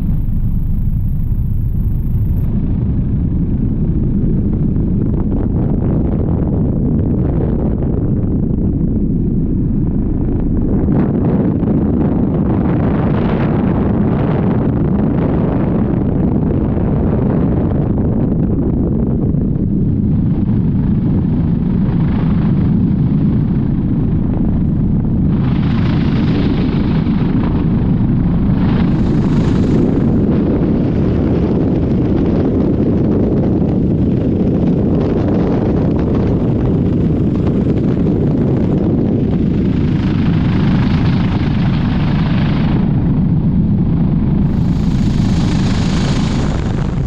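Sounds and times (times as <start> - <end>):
helicopter rotor and engine rumble: 0.0 - 47.0
wind buffeting microphone: 0.0 - 47.0.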